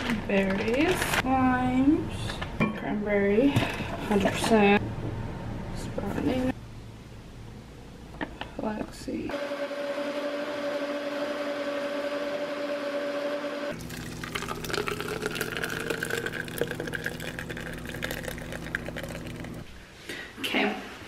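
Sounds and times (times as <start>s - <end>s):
blender running: 9.3s - 19.6s
smoothie pouring and dripping: 13.7s - 19.8s.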